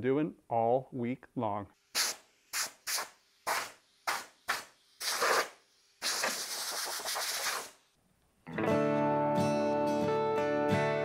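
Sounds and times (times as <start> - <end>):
air blow gun hissing: 1.9 - 7.8.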